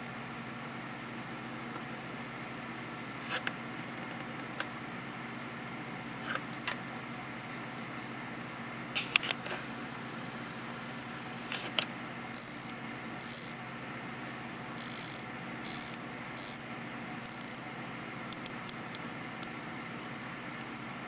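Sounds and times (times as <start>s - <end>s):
watch bezel ratcheting clicks: 12.4s - 13.6s, 14.8s - 16.6s, 17.2s - 17.6s, 18.3s - 19.0s.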